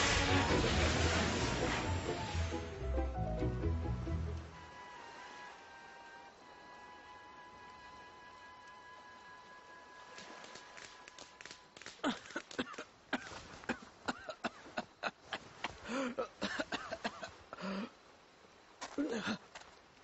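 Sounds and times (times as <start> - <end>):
crackles and clicks of smouldering wood: 10.1 - 13.8.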